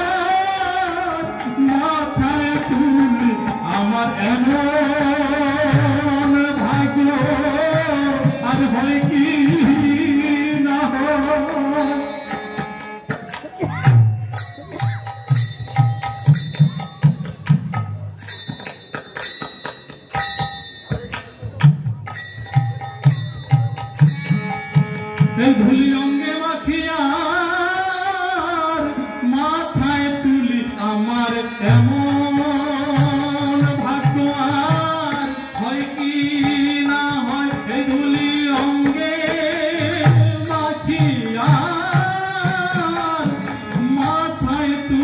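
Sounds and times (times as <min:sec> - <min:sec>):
man singing: 0:00.0 - 0:13.4, 0:25.0 - 0:45.0
harmonium chord: 0:00.0 - 0:15.2, 0:24.4 - 0:45.0
hand drum beats: 0:11.4 - 0:26.2.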